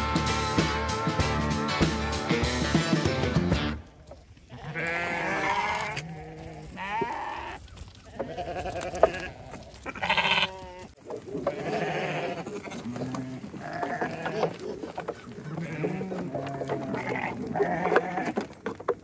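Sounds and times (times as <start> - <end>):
sheep bleating: 4.4 - 18.4.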